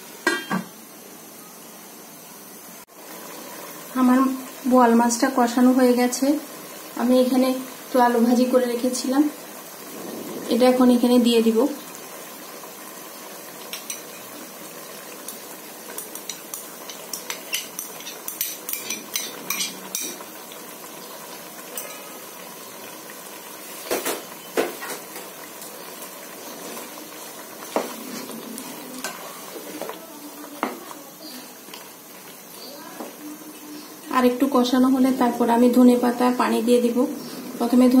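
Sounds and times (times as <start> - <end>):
curry sizzling in a pot: 0.0 - 38.0
wooden spatula scraping pot: 27.6 - 30.0.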